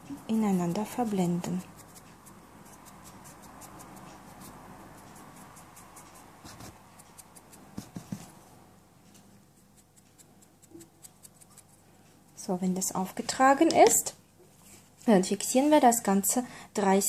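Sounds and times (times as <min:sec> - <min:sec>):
brush scratching on nail: 0:00.1 - 0:08.3, 0:09.4 - 0:12.5.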